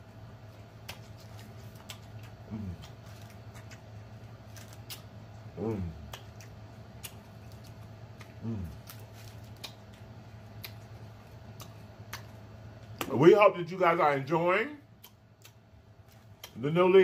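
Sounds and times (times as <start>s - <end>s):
chewing crunchy taco: 0.0s - 13.3s, 14.2s - 16.9s
person humming: 2.5s - 2.9s, 8.4s - 8.8s.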